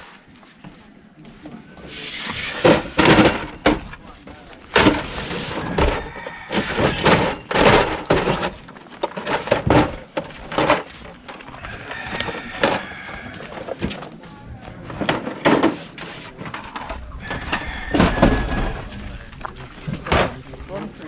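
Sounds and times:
knocks and thuds: 2.6 - 4.0, 4.7 - 10.9, 16.6 - 18.9, 19.9 - 20.5.

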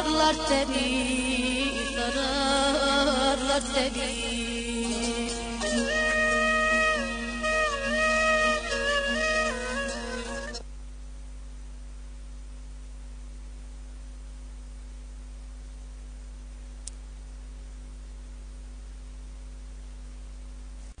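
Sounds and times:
mains hum: 0.0 - 21.0
tape hiss: 0.0 - 21.0
faint click: 16.8 - 17.0.

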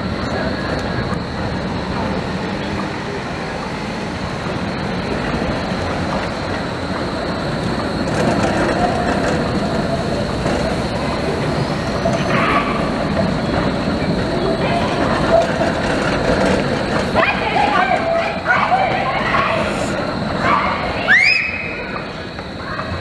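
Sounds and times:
tram wheels rumbling on rail: 0.0 - 23.0
wheel squeal on curve: 7.8 - 23.0.

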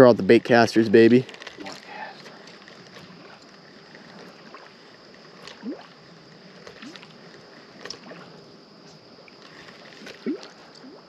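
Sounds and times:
steady high hiss: 0.0 - 11.0
lure blooping on water: 3.0 - 8.4, 9.2 - 11.0.

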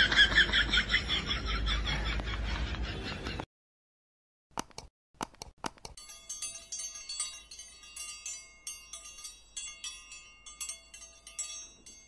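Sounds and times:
tinkling bell chimes: 6.0 - 12.0.

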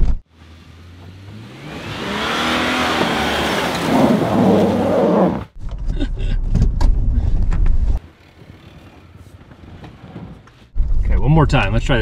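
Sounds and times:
tyres churning snow: 0.4 - 5.5
truck engine revving: 0.8 - 5.6.

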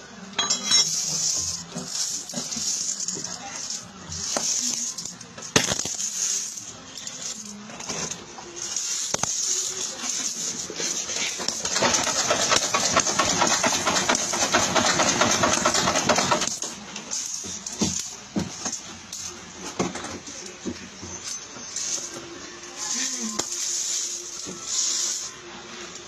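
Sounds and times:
metal coins jingling: 0.4 - 7.6.

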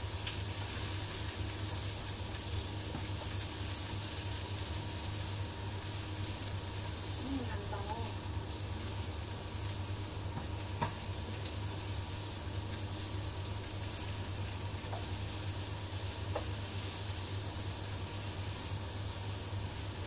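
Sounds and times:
food sizzling in a frying pan: 0.0 - 20.0
steady low hum: 0.0 - 20.0.

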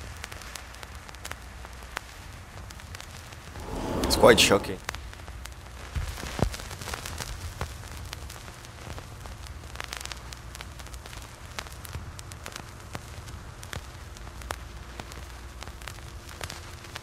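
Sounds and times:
low hum: 3.6 - 4.8.

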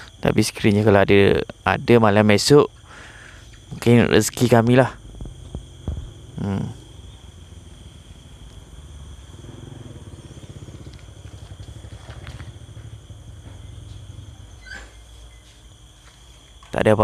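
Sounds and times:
night insects trilling: 0.0 - 17.0
low rumble: 4.9 - 14.6.

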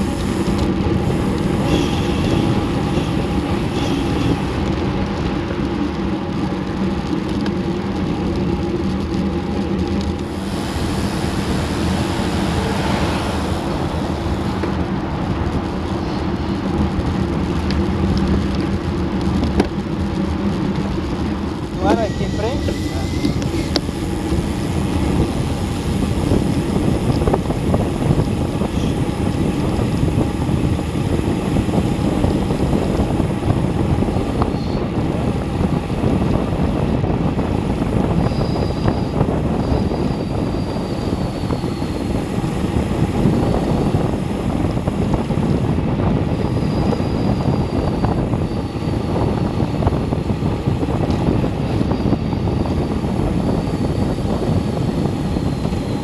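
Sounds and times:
wind buffeting microphone: 0.0 - 56.0
faint high whine: 10.2 - 16.7, 21.7 - 56.0.

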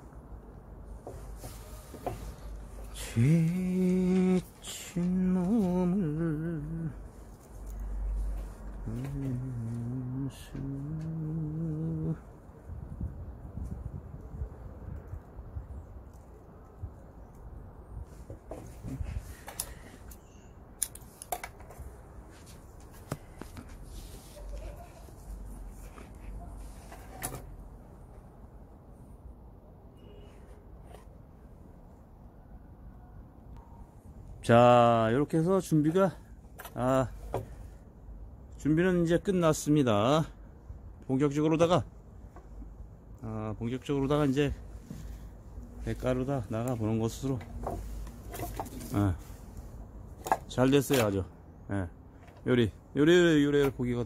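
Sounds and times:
faint handling sounds: 0.2 - 11.2, 16.1 - 28.4, 30.0 - 31.8, 43.8 - 51.3
man humming: 8.9 - 12.2.

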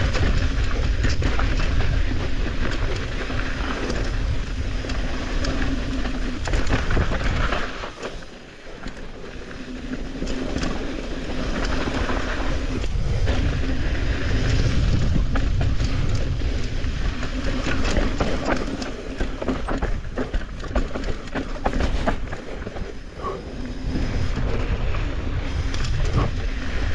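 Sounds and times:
bike rattling and clattering: 0.0 - 26.9
bike tyres rolling over dirt: 0.0 - 26.9
wind on microphone: 9.5 - 26.9.

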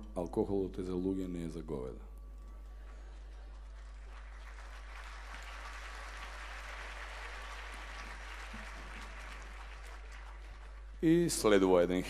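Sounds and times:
audience applauding: 3.0 - 11.9.

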